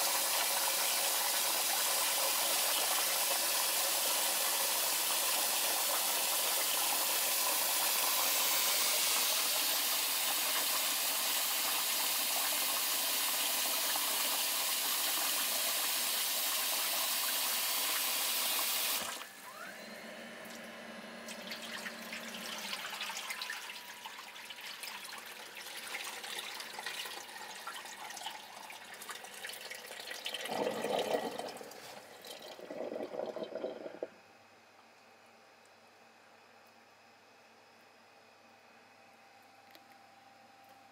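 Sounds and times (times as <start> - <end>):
tap water running into bowl: 21.3 - 34.1
water sloshing in bowl: 30.4 - 34.1.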